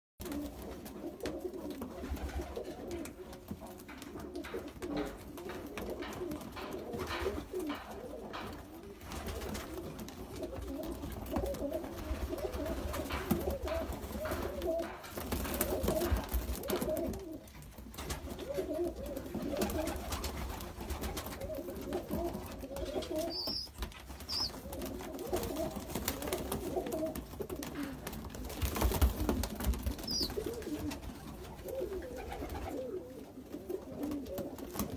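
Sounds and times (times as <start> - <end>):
pigeons cooing: 0.3 - 34.9
short high squeaks: 23.3 - 23.7.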